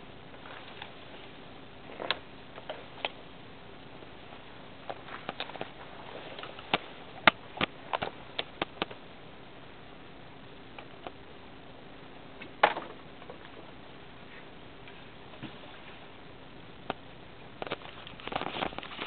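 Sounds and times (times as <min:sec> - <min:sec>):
branches and twigs snapping: 0:04.8 - 0:09.0.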